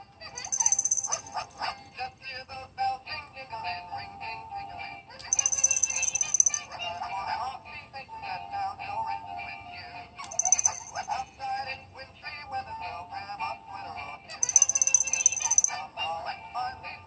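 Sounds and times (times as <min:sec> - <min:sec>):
toy voices singing over music: 0:00.0 - 0:17.0
bells jingling: 0:00.4 - 0:01.6, 0:05.3 - 0:06.7, 0:10.3 - 0:11.2, 0:14.4 - 0:15.8.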